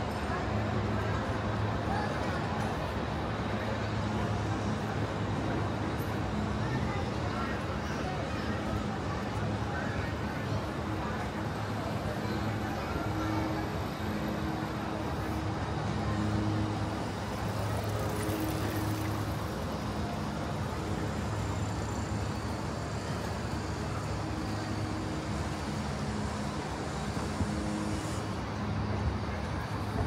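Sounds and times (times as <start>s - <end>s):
road traffic passing: 0.0s - 30.0s.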